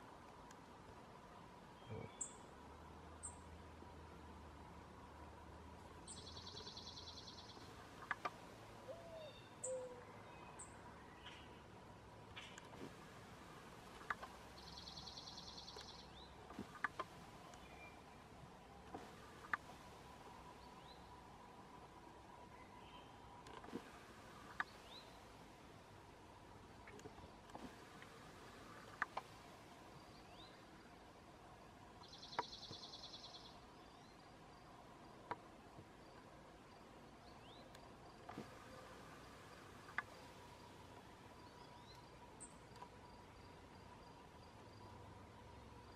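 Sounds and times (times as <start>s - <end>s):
low bird calls: 1.8s - 2.5s, 6.0s - 21.4s, 32.0s - 34.2s
thin bird chirps: 6.0s - 8.2s, 14.0s - 18.3s, 32.0s - 34.2s
sharp clicks: 13.9s - 14.4s, 15.7s - 17.7s, 18.8s - 19.7s, 23.4s - 24.8s, 28.9s - 29.3s.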